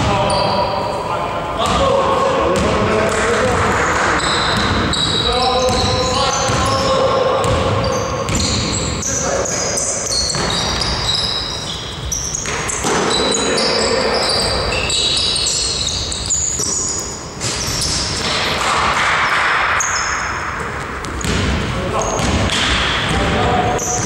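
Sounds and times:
sneaker squeaks: 0:00.0 - 0:01.9, 0:03.7 - 0:24.0
basketball bouncing: 0:02.5 - 0:09.1, 0:10.2 - 0:11.2, 0:12.3 - 0:13.4, 0:17.4 - 0:24.0.

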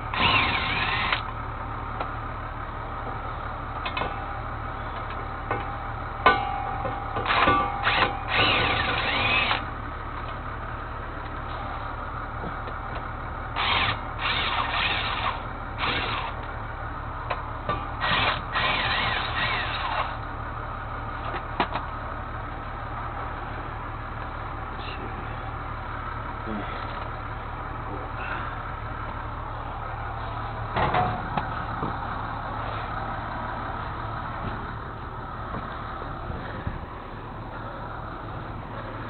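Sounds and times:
steady low hum: 0:00.0 - 0:39.0
handheld power tool running: 0:00.1 - 0:01.3, 0:07.2 - 0:09.6, 0:13.6 - 0:16.4, 0:18.0 - 0:20.2.

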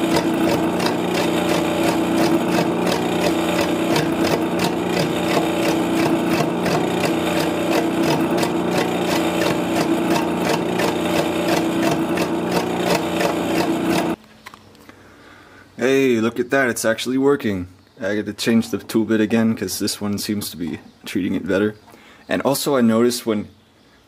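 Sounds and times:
lathe motor hum: 0:00.0 - 0:14.2
tool bit scraping wood: 0:00.0 - 0:14.2.

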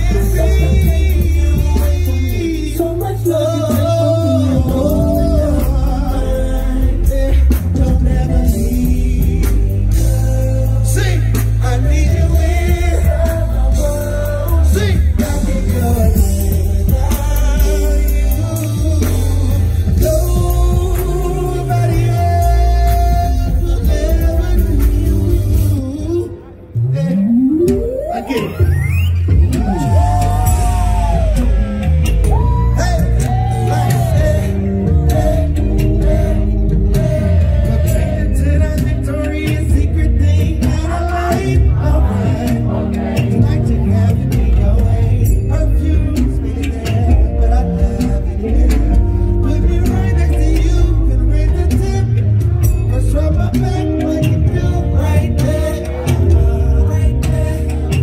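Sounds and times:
person singing wordless notes: 0:00.0 - 0:28.9
backing track with heavy bass: 0:00.0 - 0:58.0
man singing: 0:00.0 - 0:58.0.

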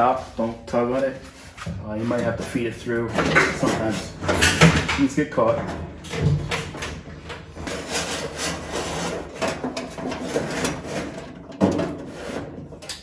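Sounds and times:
cable rubbing through metal slot: 0:06.5 - 0:13.0.

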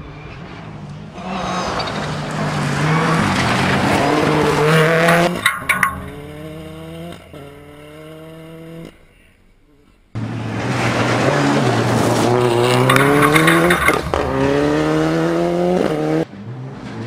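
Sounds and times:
gravel and tyres hissing: 0:00.0 - 0:16.8
rally car engine: 0:00.0 - 0:17.0
sharp cracks: 0:02.2 - 0:10.0, 0:11.8 - 0:15.3
gear change: 0:10.7 - 0:16.9.

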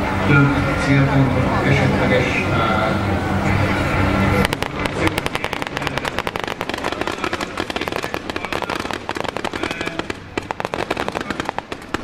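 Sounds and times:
rapid small-arms gunfire: 0:04.5 - 0:12.0.

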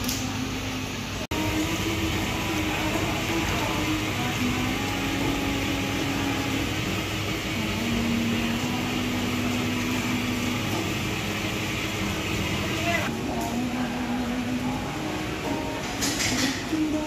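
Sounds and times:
mechanical hum and hiss: 0:00.0 - 0:17.0.

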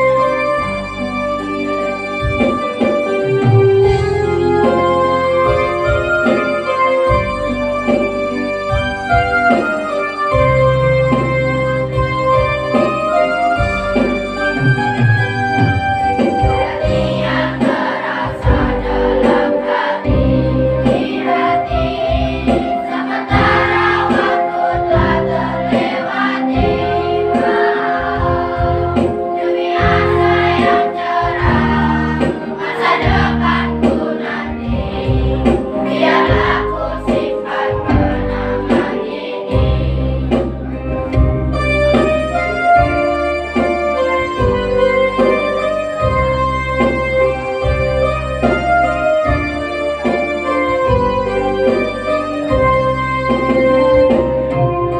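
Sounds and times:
electronic keyboard with bass pulse: 0:00.0 - 0:54.9
children's choir singing: 0:16.1 - 0:41.0.

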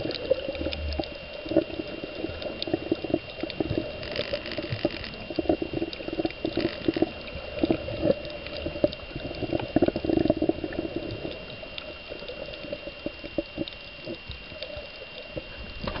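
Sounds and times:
water bubbling and gurgling: 0:00.0 - 0:16.0.

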